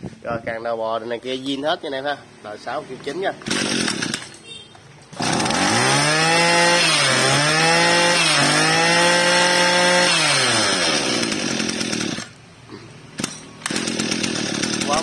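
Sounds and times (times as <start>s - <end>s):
brush cutter engine revving: 3.0s - 4.4s, 5.1s - 12.4s, 13.1s - 15.0s.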